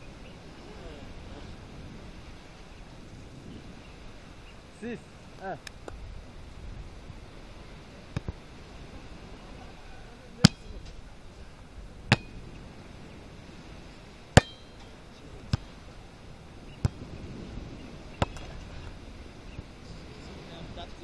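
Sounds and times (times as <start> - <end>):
hands smacking volleyball: 8.1 - 8.4, 15.5 - 15.8, 18.2 - 18.6.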